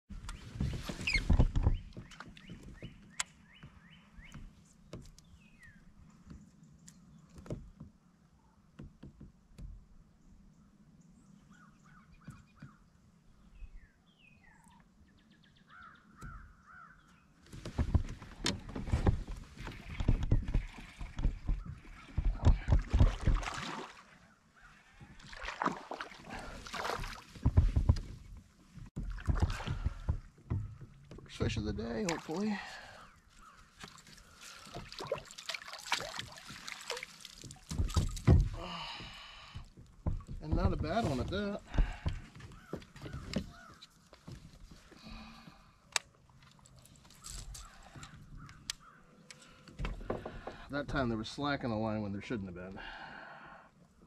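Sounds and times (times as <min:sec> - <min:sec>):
faint bird calls: 0:10.5 - 0:17.4, 0:24.2 - 0:25.2, 0:32.3 - 0:34.8, 0:41.7 - 0:44.2, 0:47.0 - 0:50.6
water sloshing in kayak: 0:17.5 - 0:49.1.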